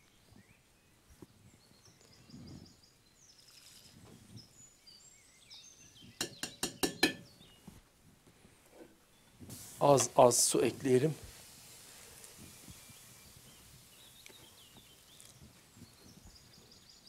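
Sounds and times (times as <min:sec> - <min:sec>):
faint bird chirps: 0:00.0 - 0:07.8, 0:12.4 - 0:17.0
knocks against cast-iron pot: 0:06.2 - 0:07.3.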